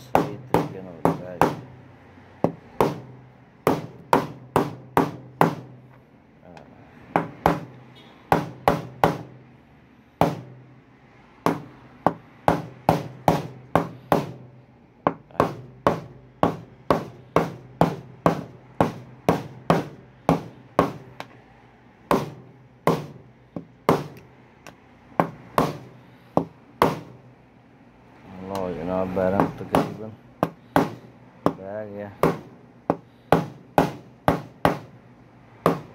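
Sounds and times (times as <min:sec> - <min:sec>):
hammer knocking bearing into plastic: 0:00.0 - 0:01.7, 0:02.4 - 0:05.8, 0:07.1 - 0:09.4, 0:10.2 - 0:10.6, 0:11.5 - 0:14.5, 0:15.1 - 0:21.4, 0:22.1 - 0:27.2, 0:29.3 - 0:35.0, 0:35.6 - 0:35.9.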